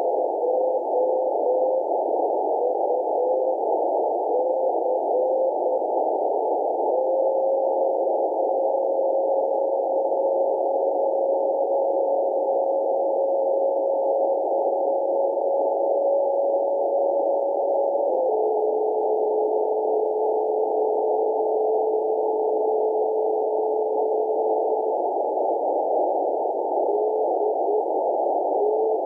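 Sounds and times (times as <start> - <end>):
radio tone: 0.0 - 29.0
receiver hiss: 0.0 - 29.0.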